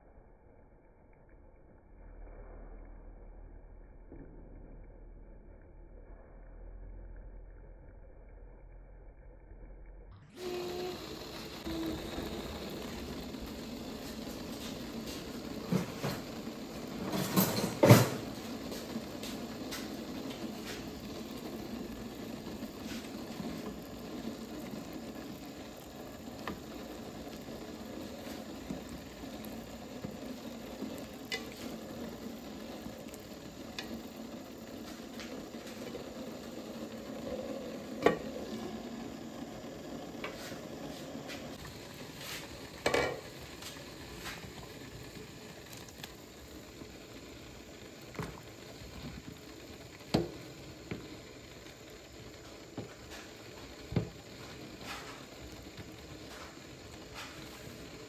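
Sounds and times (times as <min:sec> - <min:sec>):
food sizzling: 0:10.2 - 0:58.0
utensil clanking on pan: 0:42.8 - 0:43.2.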